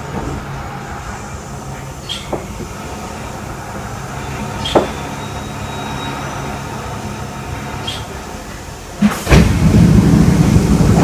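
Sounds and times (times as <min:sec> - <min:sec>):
pneumatic doors rush of air: 0:00.0 - 0:11.0
train car humming: 0:00.0 - 0:11.0.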